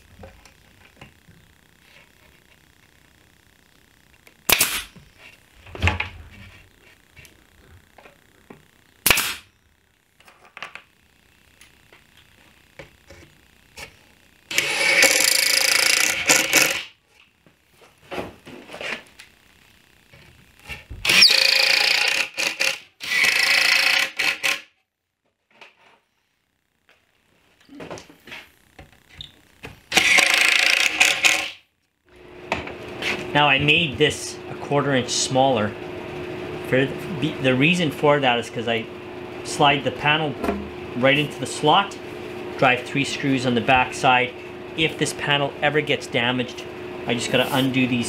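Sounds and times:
pin nailer firing: 4.5s - 4.9s, 9.0s - 9.5s, 14.5s - 16.9s, 21.0s - 24.7s, 29.9s - 31.6s
cordless drill running: 14.5s - 16.9s, 21.0s - 24.7s, 29.9s - 31.6s.

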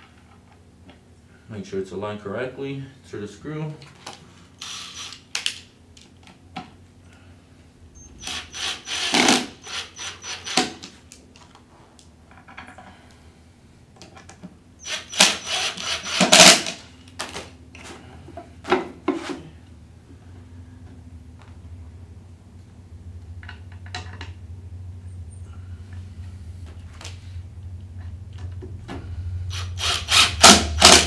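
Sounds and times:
impact driver driving screws: 4.6s - 5.4s, 8.2s - 10.8s, 14.8s - 16.8s, 29.5s - 31.0s.

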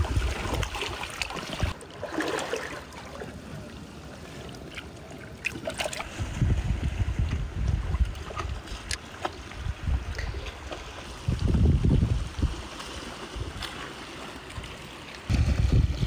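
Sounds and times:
wind buffeting microphone: 0.0s - 1.8s, 6.0s - 13.7s, 15.3s - 16.0s
surf on the shore: 0.0s - 16.0s.

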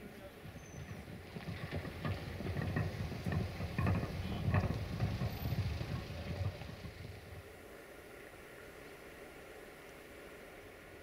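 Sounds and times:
wind buffeting microphone: 0.2s - 7.5s.

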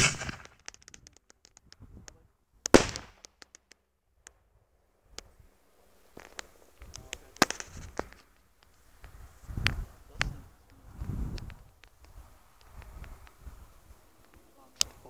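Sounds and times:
sharp crack: 0.0s - 4.4s, 6.0s - 13.4s
faint pops and crackles: 0.0s - 15.0s
firework shell bang: 2.7s - 3.2s.

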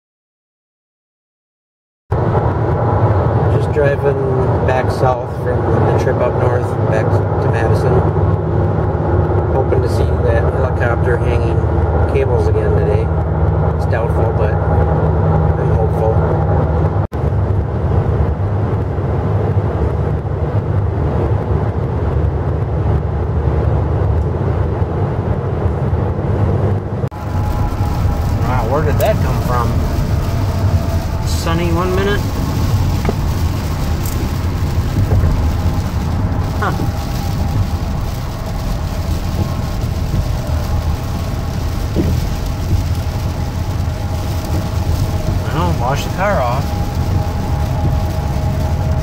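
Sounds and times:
minivan road rumble inside cabin: 2.1s - 49.0s
tyre and engine noise: 2.1s - 49.0s
rain on windshield: 27.1s - 49.0s
windshield wipers sweeping: 27.1s - 49.0s.

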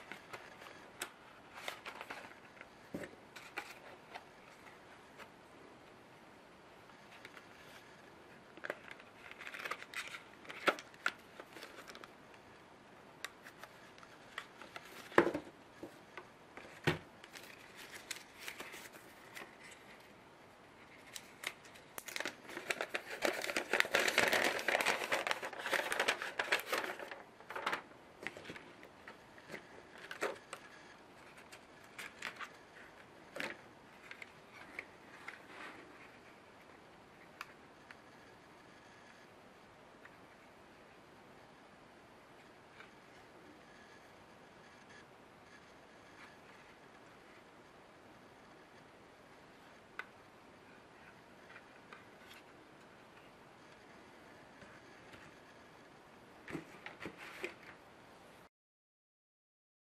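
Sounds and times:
paper and plastic rustling: 0.0s - 5.3s, 7.1s - 12.1s, 13.4s - 16.0s, 16.6s - 20.1s, 20.8s - 36.4s, 56.4s - 57.8s.

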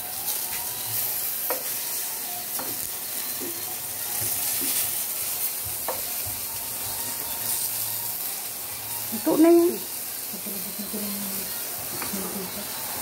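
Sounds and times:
slices frying in oil: 0.0s - 13.0s.

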